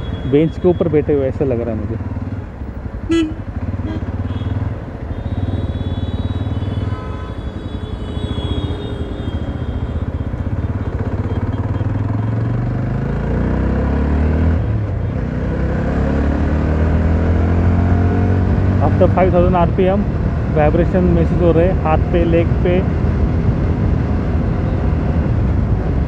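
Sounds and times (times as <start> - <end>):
motorcycle engine accelerating: 1.6 - 7.0, 8.4 - 20.5.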